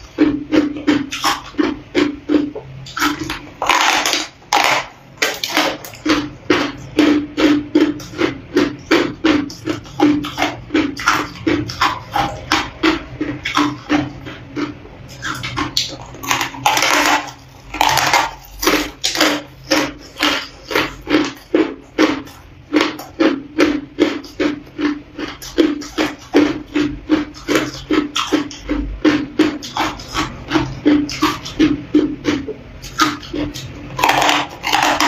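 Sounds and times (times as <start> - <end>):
ice crunching while chewed: 0.0 - 35.0.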